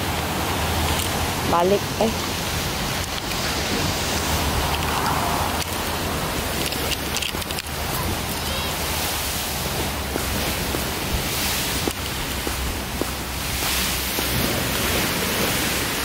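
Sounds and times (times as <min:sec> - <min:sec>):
surf: 0:00.0 - 0:16.0
wind: 0:00.0 - 0:16.0
footsteps on concrete: 0:10.0 - 0:15.0.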